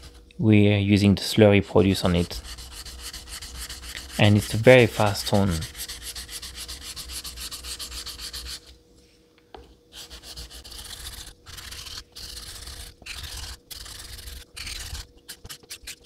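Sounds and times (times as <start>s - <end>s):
razor blade scraping on whetstone: 10.0s - 16.0s.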